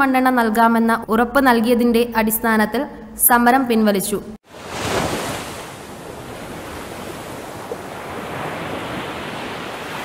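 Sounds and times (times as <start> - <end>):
ocean waves washing: 4.4 - 10.0.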